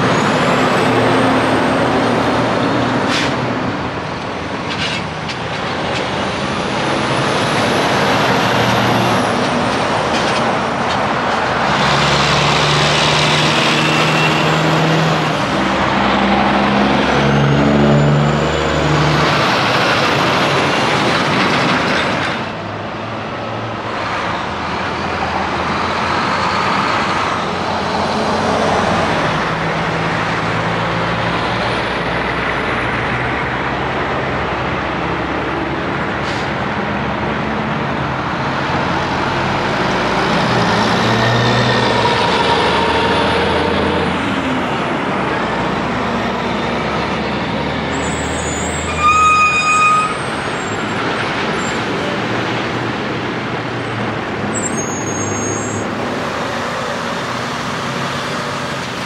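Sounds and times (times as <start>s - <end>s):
truck accelerating through gears: 0.0s - 59.0s
trucks driving past: 0.0s - 59.0s
tyre and road noise: 0.0s - 59.0s.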